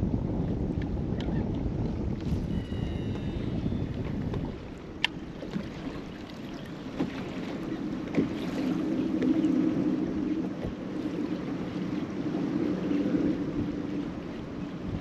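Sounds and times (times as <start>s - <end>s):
low hum: 0.0s - 7.8s
wind buffeting microphone: 0.0s - 15.0s
water lapping against boat hull: 0.2s - 15.0s.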